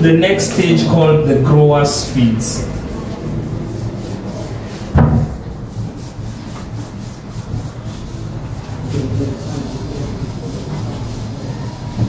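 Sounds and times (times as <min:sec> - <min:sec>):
whiteboard being wiped: 0:00.0 - 0:12.0
knock against whiteboard: 0:05.0 - 0:05.4.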